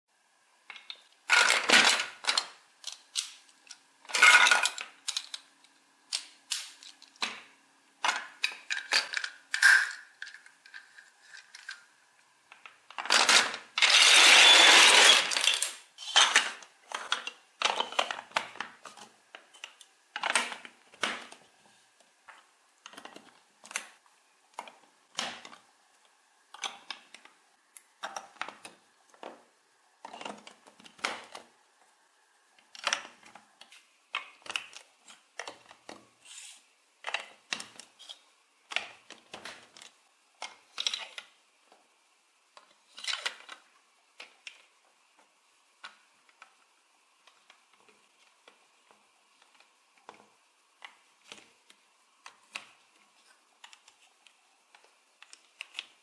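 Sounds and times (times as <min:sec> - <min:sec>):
plastic toy bricks clattering: 0:00.7 - 0:03.4, 0:04.1 - 0:05.5, 0:08.0 - 0:11.9, 0:12.5 - 0:18.9.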